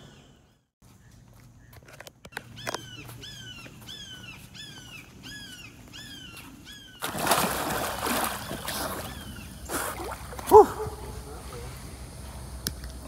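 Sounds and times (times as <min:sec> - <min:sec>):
bird calling: 0:00.0 - 0:12.0
water splashing: 0:07.0 - 0:11.7.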